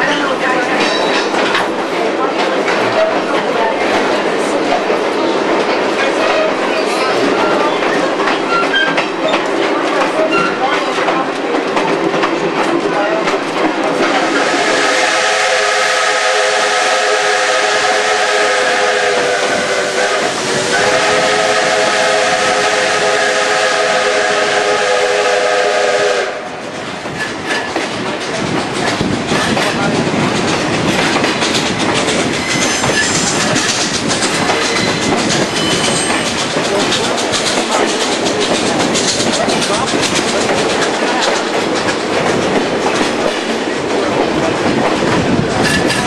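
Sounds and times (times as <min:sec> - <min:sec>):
train wheels clickety-clack: 0:00.0 - 0:46.0
steam whistle chord: 0:14.3 - 0:26.5.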